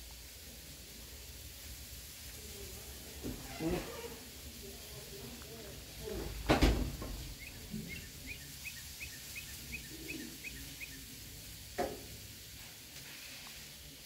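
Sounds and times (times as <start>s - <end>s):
bird chirping: 7.2s - 11.2s.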